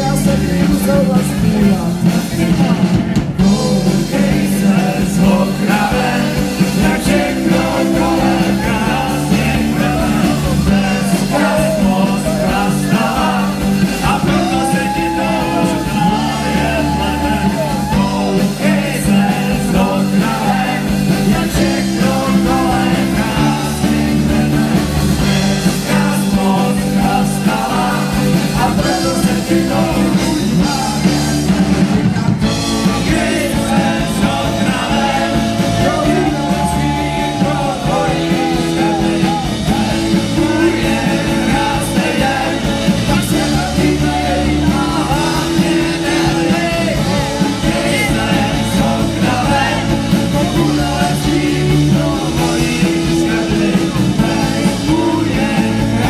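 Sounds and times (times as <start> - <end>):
bass guitar: 0.0 - 56.0
drums: 0.0 - 56.0
electric guitars: 0.0 - 56.0.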